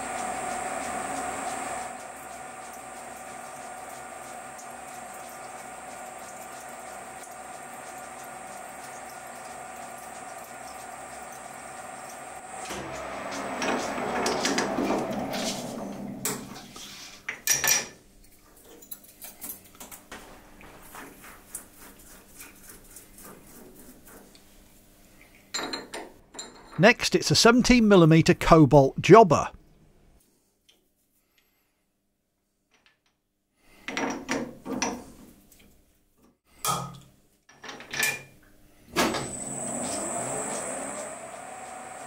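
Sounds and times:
lathe running with high whine: 0.0s - 16.6s, 39.2s - 42.0s.

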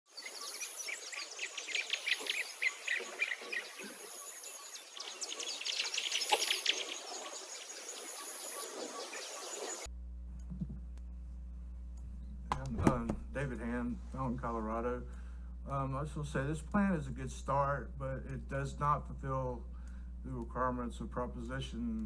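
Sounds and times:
birds chirping and trilling: 0.1s - 9.9s
low steady hum: 9.7s - 22.0s.

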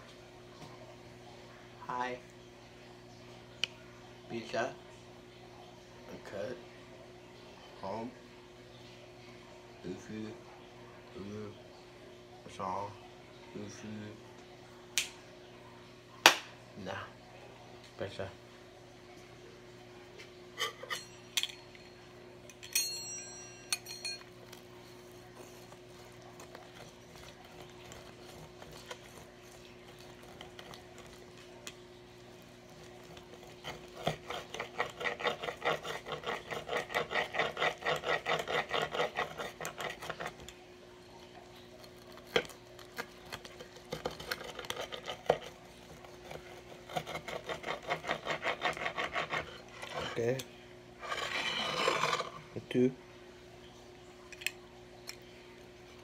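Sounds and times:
faint steady hum: 0.0s - 56.0s
metallic clinks: 20.8s - 24.3s
pizza cutter scraping on pan: 25.3s - 31.4s, 32.6s - 40.5s, 42.0s - 50.4s, 51.0s - 52.5s.

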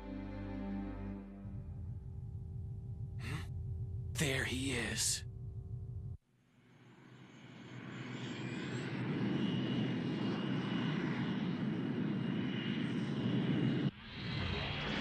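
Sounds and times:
jet-like engine roar: 7.2s - 15.0s.

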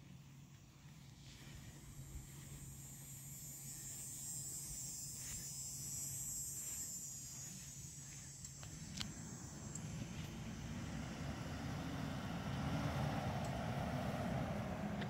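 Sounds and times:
truck engine approaching: 8.8s - 15.0s.

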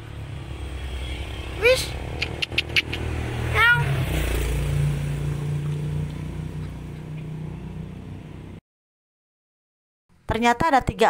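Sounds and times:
vehicle engine humming: 0.0s - 8.6s.

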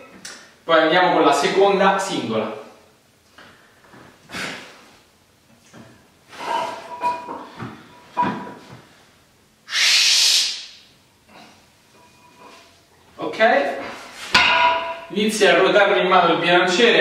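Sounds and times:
weight plates clinking: 6.4s - 8.7s, 11.9s - 12.7s, 14.4s - 15.1s
forceful hissing exhale: 9.7s - 10.6s.

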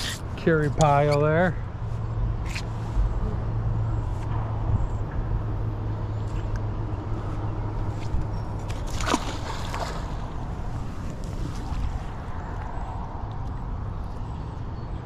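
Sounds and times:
magnet splashing into river: 8.6s - 10.4s.

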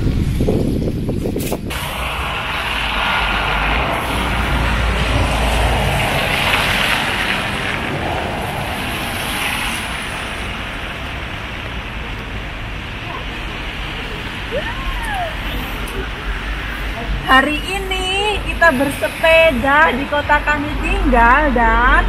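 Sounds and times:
tyre hiss on wet pavement: 0.0s - 20.1s
traffic noise: 0.0s - 22.0s
vehicle low rumble: 0.0s - 22.0s.

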